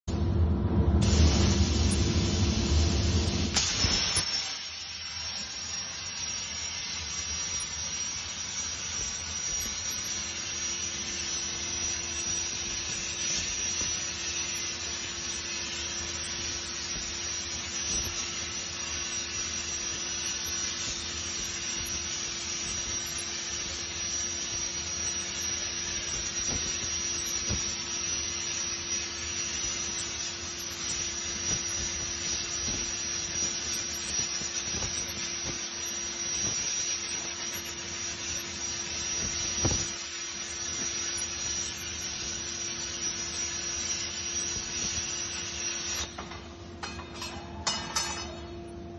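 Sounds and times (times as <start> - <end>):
machine hum: 0.1 - 4.1
crackles and pop: 0.1 - 4.4, 6.8 - 46.3
cutting torch hissing: 0.9 - 46.2.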